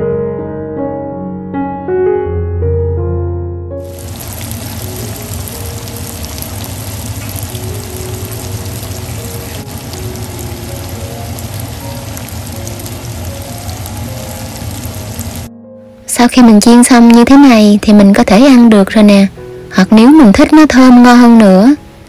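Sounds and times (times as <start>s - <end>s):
tofu sizzling in hot oil: 3.8s - 15.5s.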